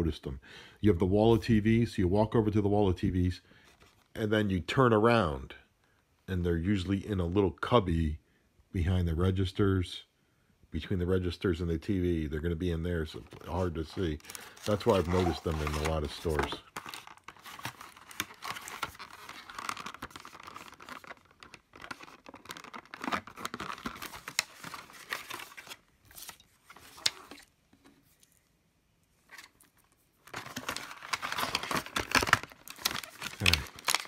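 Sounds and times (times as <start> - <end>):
cardboard and plastic packaging rustling: 3.6 - 4.2, 13.1 - 28.4, 29.2 - 34.0.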